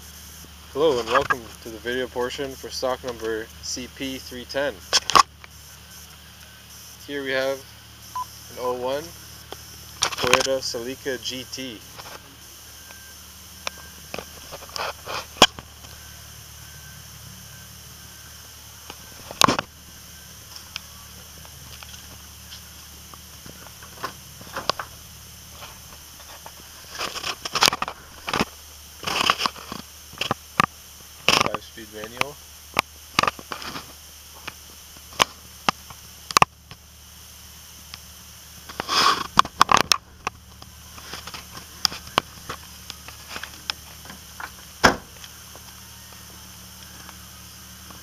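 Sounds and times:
background hiss: 0.0 - 48.0
scraping rustle: 14.2 - 15.5, 23.4 - 30.4.

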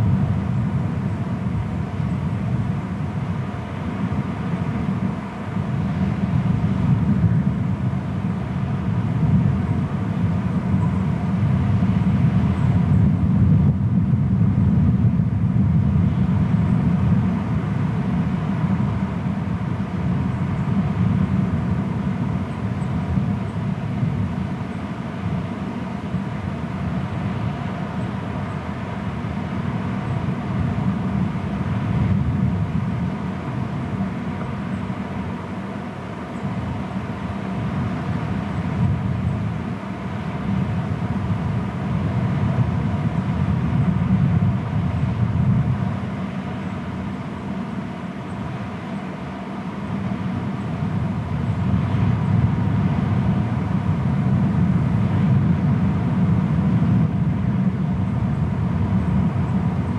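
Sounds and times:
low wind rumble on microphone: 0.0 - 59.9.

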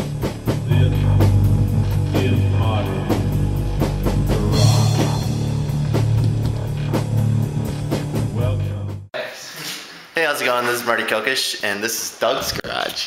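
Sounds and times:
rock music with drums and guitar: 0.0 - 8.4.

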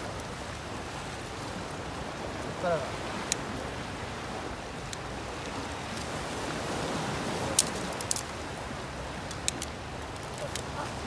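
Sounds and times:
surf breaking on rocky shore: 1.8 - 11.0
twig fire popping and crackling: 3.2 - 3.5, 7.4 - 11.0.

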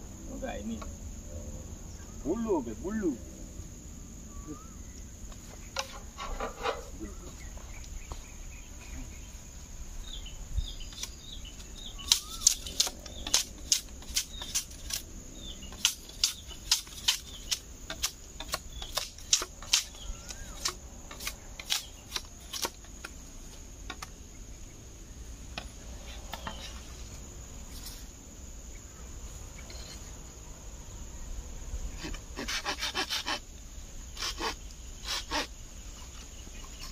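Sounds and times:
birds chirping: 0.0 - 27.6, 33.7 - 36.9
high insect drone: 0.0 - 36.9
machete chopping bamboo: 12.0 - 15.1, 15.7 - 23.2.

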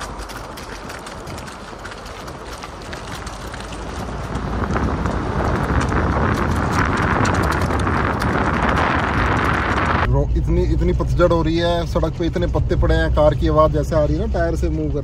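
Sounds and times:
car tyres rolling over dry leaves: 0.0 - 10.1.

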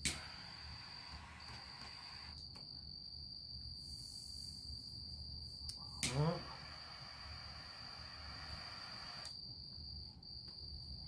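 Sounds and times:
insects trilling: 0.0 - 11.0
soft hiss: 3.5 - 9.5.

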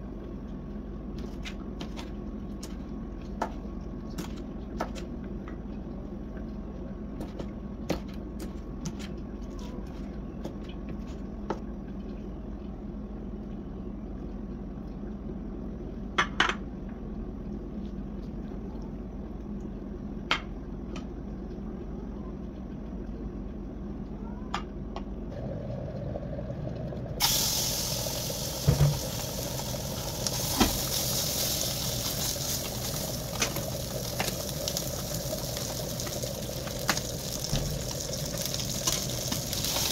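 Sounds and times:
steady low hum: 0.0 - 39.9
fat sizzling in a pan: 27.2 - 39.9.

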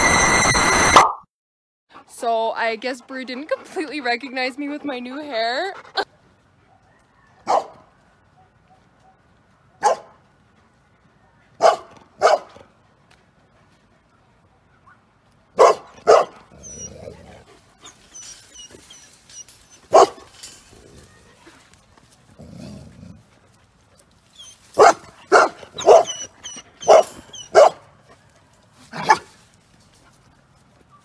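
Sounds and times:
dog barking: 6.6 - 10.2, 11.6 - 12.6, 15.6 - 16.4, 19.9 - 20.3, 24.8 - 26.2, 26.8 - 27.8, 29.0 - 29.3.

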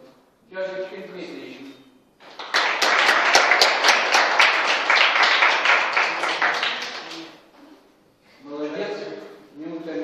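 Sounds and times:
sharp hand claps: 2.2 - 7.4
small crowd applauding: 2.2 - 7.5.

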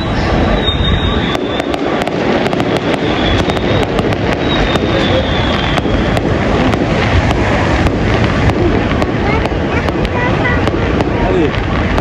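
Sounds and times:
fireworks popping and crackling: 0.0 - 12.0
low rumble: 0.0 - 12.0.

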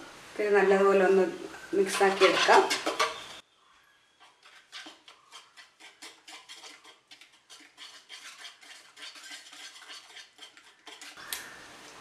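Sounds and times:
whisk beating in plastic bowl: 4.4 - 11.2.

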